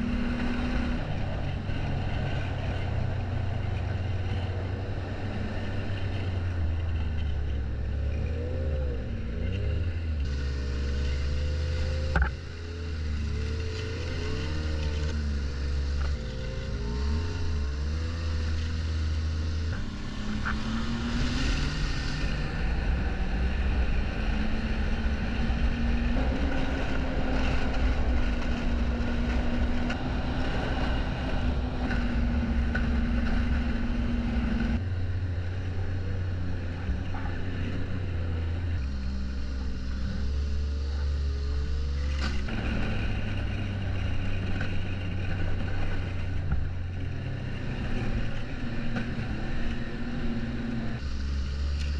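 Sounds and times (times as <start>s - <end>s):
snowmobile engine running: 0.0s - 51.9s.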